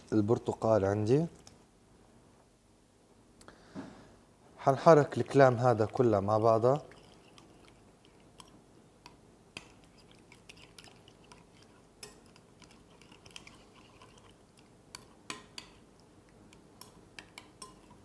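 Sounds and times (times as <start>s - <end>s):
spoon scraping wet dressing: 5.2s - 18.0s
spoon clicking against glass: 16.5s - 18.0s.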